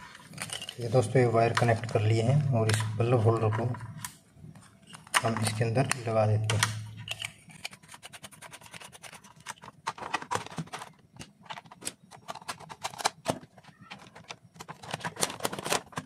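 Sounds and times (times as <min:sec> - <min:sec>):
small plastic clicks and scrapes: 0:06.6 - 0:16.0.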